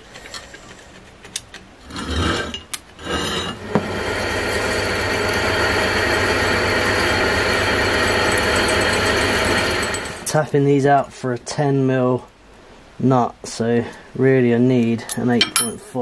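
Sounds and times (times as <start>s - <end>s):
drill boring through steel: 3.0s - 10.3s.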